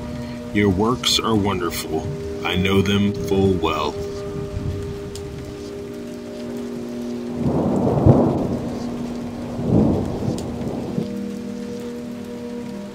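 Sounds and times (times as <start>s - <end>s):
steady rain: 0.0s - 12.9s
thunder rumbling: 0.0s - 12.9s.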